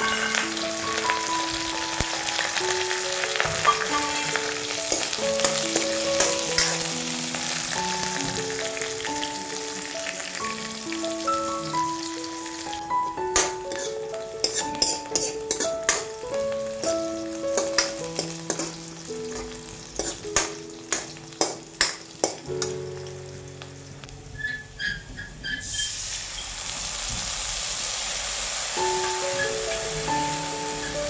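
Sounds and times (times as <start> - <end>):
background music: 0.0 - 24.4, 28.8 - 31.0
onions frying in oil: 0.0 - 31.0
water hissing in hot pan: 0.0 - 31.0
spoon scraping metal pan: 3.6 - 6.8, 13.4 - 16.1, 17.6 - 22.4.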